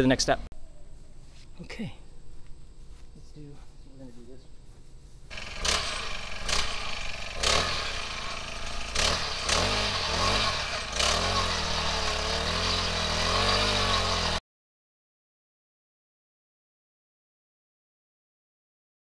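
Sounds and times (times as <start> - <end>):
small gas engine revving: 5.3 - 14.4.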